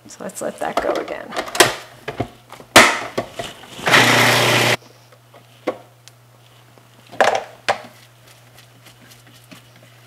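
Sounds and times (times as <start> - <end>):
food processor churning: 3.8 - 4.8.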